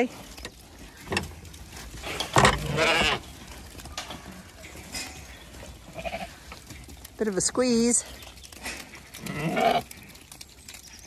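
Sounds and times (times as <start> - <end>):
taps and rustles of flock: 0.0 - 11.0
sheep bleating: 2.6 - 3.2, 5.9 - 6.4, 9.2 - 9.9.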